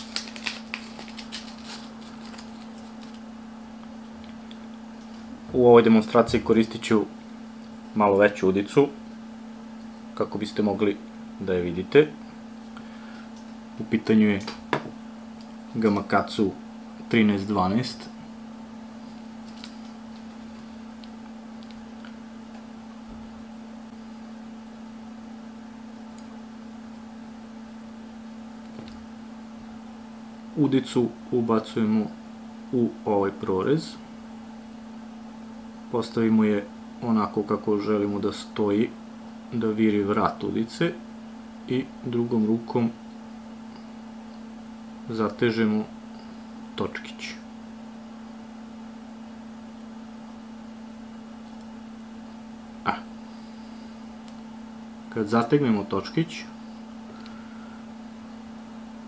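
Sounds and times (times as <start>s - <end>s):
plastic packet clicks: 0.0s - 3.2s
steady low hum: 0.0s - 59.0s.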